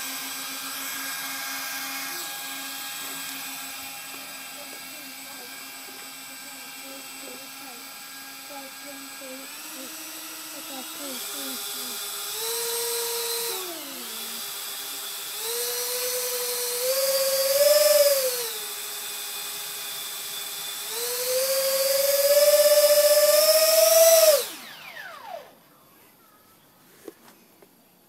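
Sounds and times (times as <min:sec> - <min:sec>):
electric ducted fans whining: 0:00.0 - 0:27.8.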